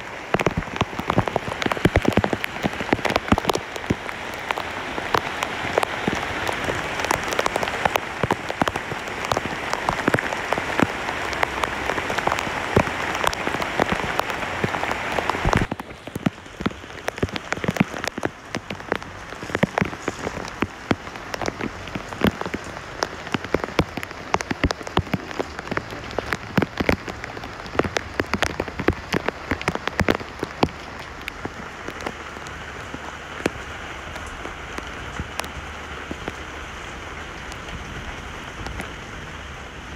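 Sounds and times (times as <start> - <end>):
heavy rain on leaves: 0.0 - 39.9
patter of raindrops: 0.0 - 39.9.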